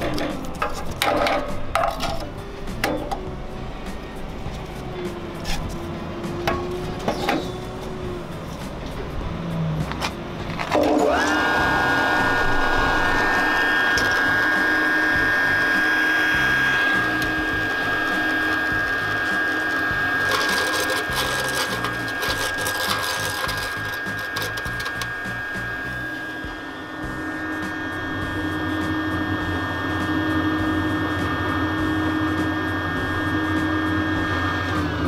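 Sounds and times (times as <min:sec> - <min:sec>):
mill motor whining: 0:10.2 - 0:35.0
rapid crackle of clicks: 0:17.0 - 0:25.2.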